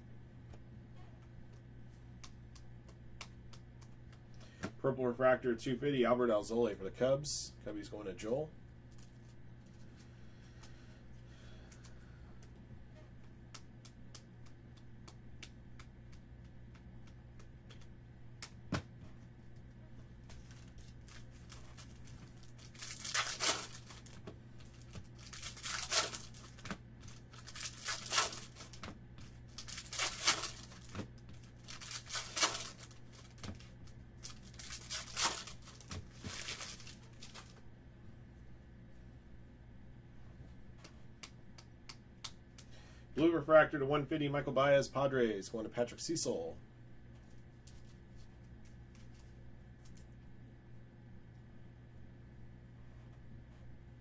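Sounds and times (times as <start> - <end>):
cards being handled: 13.2 - 37.6, 47.2 - 50.1
wrappers tearing and crinkling: 20.4 - 28.8, 29.5 - 37.6.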